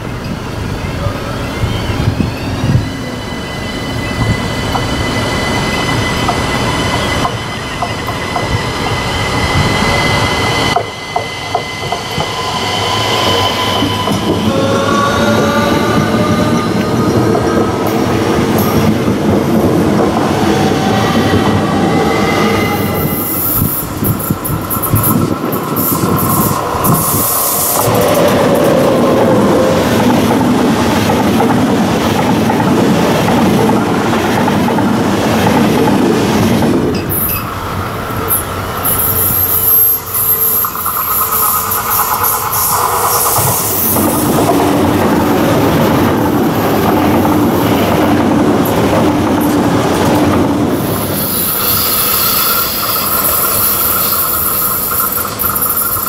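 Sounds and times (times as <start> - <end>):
high-speed train rumble: 0.0 - 56.0
train wheels rolling on rails: 0.0 - 56.0
electric train motors whining: 1.6 - 31.6, 36.9 - 47.4, 49.6 - 56.0.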